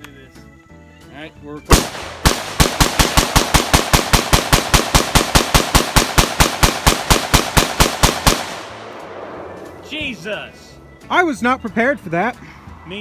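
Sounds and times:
rifle firing rapid shots: 0:01.7 - 0:09.3.

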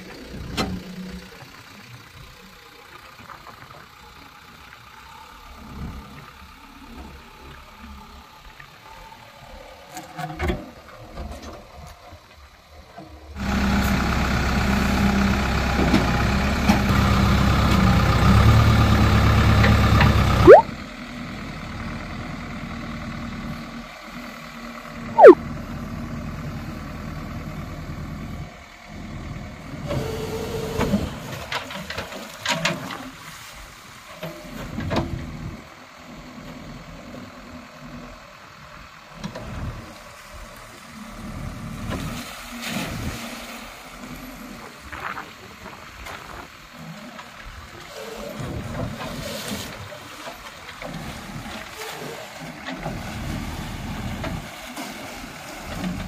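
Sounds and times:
diesel engine running: 0:00.0 - 0:56.0
bucket working in water and mud: 0:39.2 - 0:56.0.

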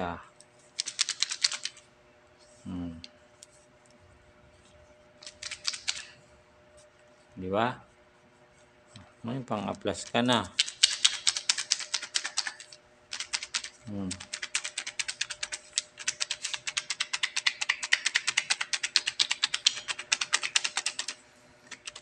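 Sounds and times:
chips rattling in shaken bottle: 0:00.8 - 0:01.8, 0:10.5 - 0:22.0.

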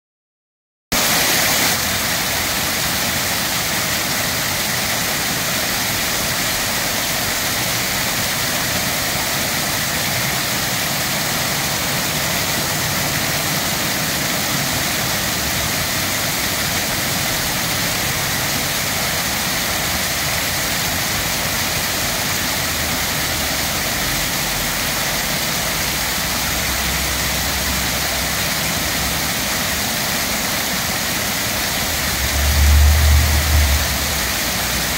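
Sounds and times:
fountain water splashing: 0:01.0 - 0:34.9
passing vehicle rumble: 0:31.2 - 0:34.9.

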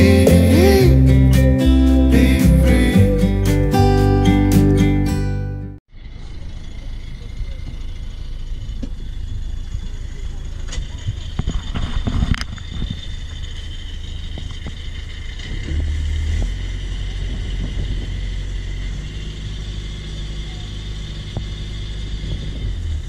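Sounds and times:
boat engine rumbling: 0:00.0 - 0:23.0.

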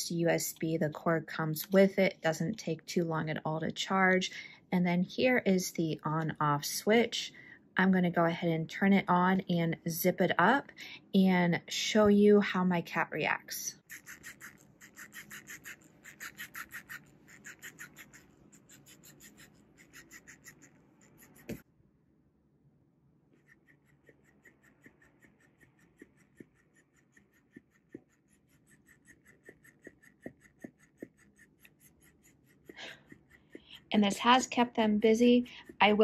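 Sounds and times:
toy motor ticking buzz: 0:13.8 - 0:21.6, 0:23.4 - 0:33.9.

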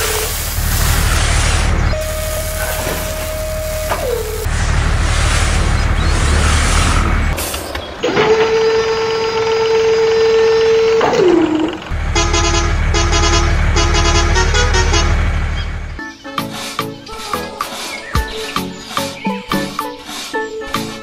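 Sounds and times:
engine rumble: 0:00.0 - 0:16.0
vehicle horn: 0:01.9 - 0:04.6, 0:08.1 - 0:15.8.

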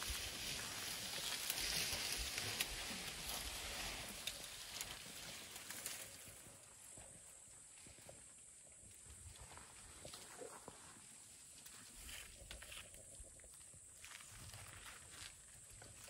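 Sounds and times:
bush leaves rustling: 0:00.0 - 0:07.0.

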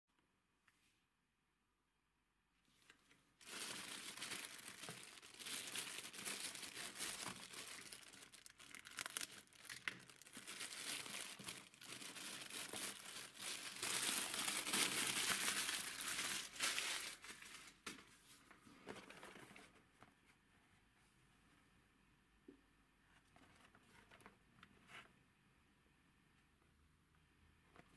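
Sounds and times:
plastic bag crinkling and tearing: 0:03.4 - 0:17.9.

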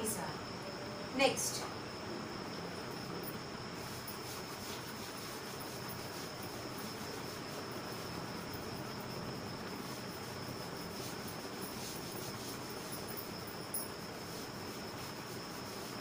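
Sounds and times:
high-pitched trill and hiss: 0:00.0 - 0:16.0
duster rubbing chalkboard: 0:03.8 - 0:08.3, 0:09.7 - 0:13.4, 0:14.1 - 0:16.0.

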